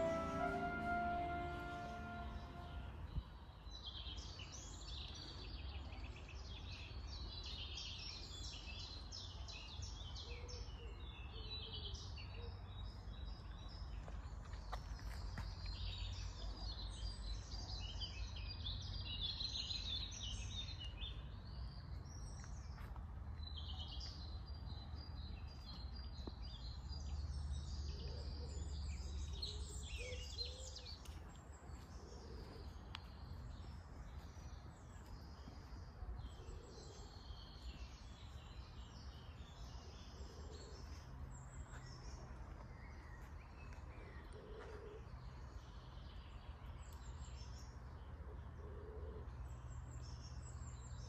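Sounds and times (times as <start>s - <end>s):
songbirds singing and chirping: 0.0s - 51.0s.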